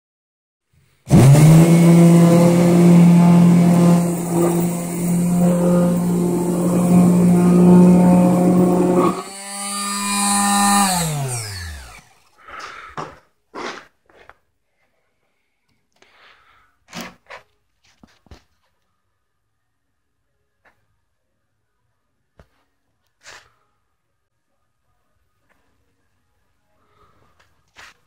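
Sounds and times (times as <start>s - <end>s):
palm sander motor humming: 1.1s - 12.3s
sander pad rasping on wood: 1.1s - 12.3s.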